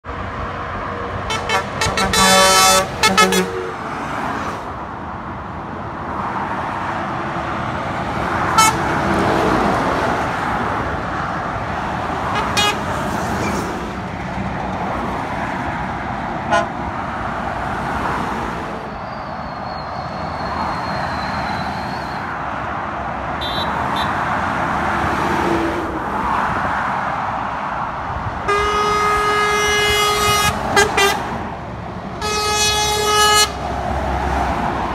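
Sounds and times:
highway traffic passing: 0:00.0 - 0:34.9
truck air horn blasts: 0:01.3 - 0:03.9, 0:08.5 - 0:08.9, 0:12.3 - 0:12.9, 0:16.5 - 0:16.8, 0:23.4 - 0:24.2, 0:28.4 - 0:31.3, 0:32.2 - 0:33.6.

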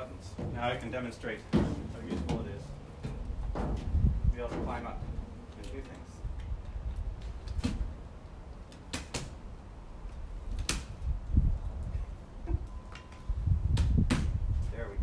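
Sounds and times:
metal ladder knocks and clacks: 0:00.3 - 0:05.9.

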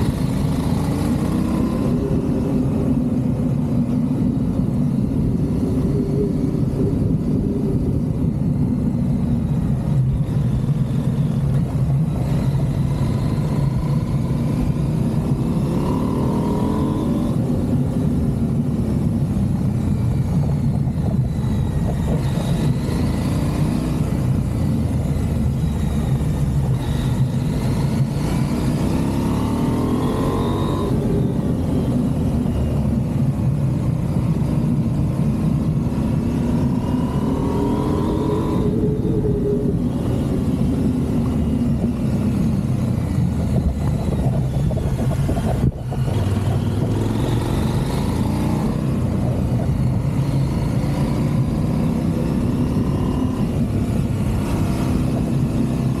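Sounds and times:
motorcycle engine accelerating: 0:00.0 - 0:56.0.

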